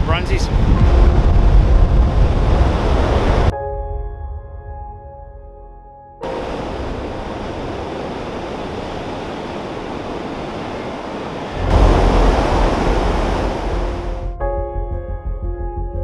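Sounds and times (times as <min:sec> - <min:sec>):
wind: 0:00.0 - 0:03.5, 0:06.2 - 0:14.4
music: 0:00.2 - 0:02.6, 0:03.5 - 0:06.3, 0:13.7 - 0:16.0
waves breaking on beach: 0:06.2 - 0:14.3.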